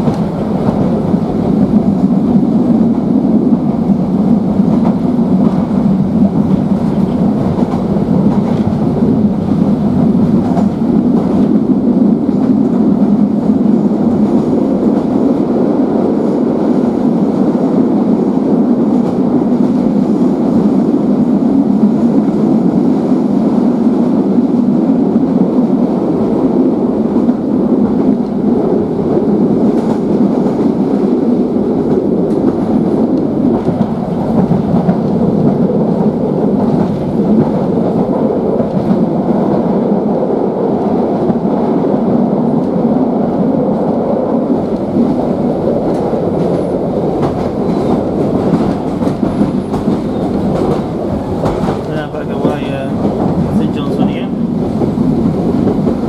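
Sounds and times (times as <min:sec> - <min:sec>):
wheels on rails: 0:42.2 - 0:56.0.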